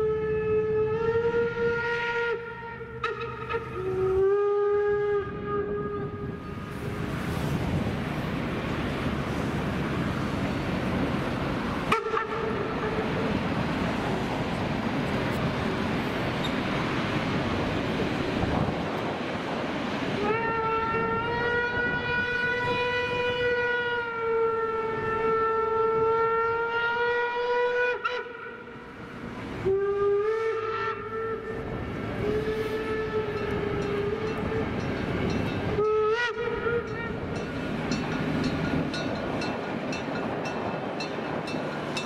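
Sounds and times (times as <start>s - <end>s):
steam locomotive whistle: 0.0s - 7.5s, 11.9s - 13.4s, 20.2s - 37.4s
train rolling by: 0.0s - 25.7s, 27.0s - 42.0s.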